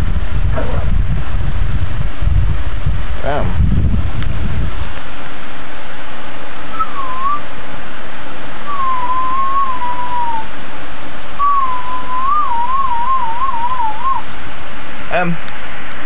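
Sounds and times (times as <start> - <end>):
dog whining: 0.5 - 0.9.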